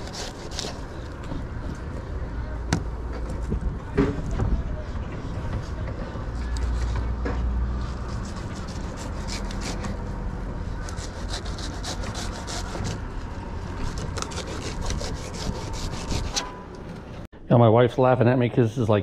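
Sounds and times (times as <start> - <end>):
knife scraping fish: 0.0 - 1.2, 7.8 - 10.0, 10.8 - 13.0, 13.7 - 16.6.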